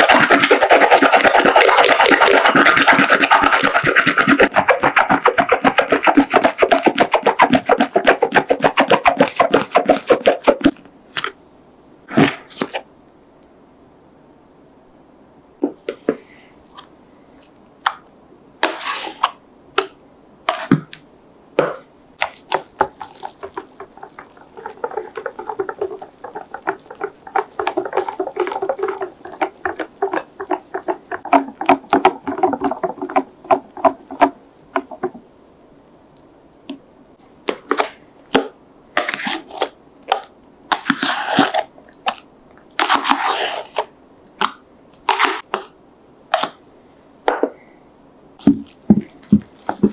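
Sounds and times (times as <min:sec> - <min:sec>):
spatula and cup taps and scrapes: 0:21.6 - 0:35.2, 0:48.4 - 0:49.9.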